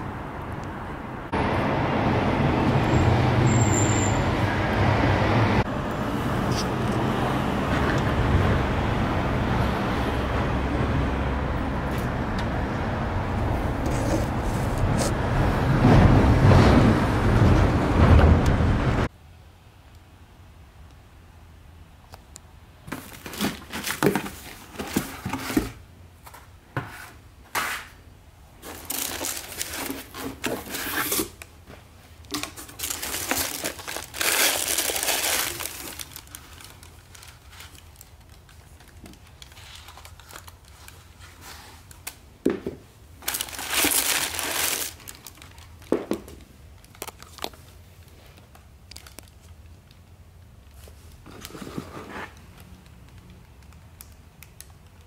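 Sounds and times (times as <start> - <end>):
crinkling packaging: 28.6 - 31.6, 32.2 - 42.2, 43.2 - 51.6.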